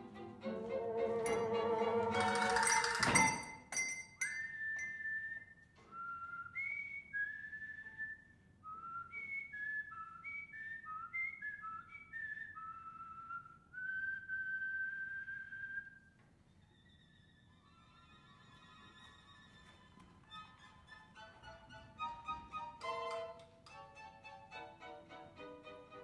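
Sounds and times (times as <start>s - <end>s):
person whistling a tune: 4.4s - 16.2s.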